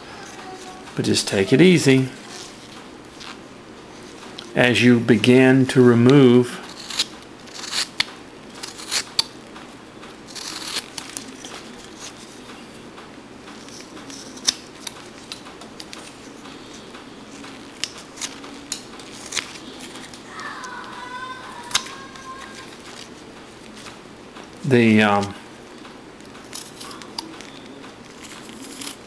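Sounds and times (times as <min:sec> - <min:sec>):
knife whittling wood: 0:06.6 - 0:09.3, 0:10.2 - 0:12.5, 0:13.5 - 0:23.8, 0:26.4 - 0:29.0.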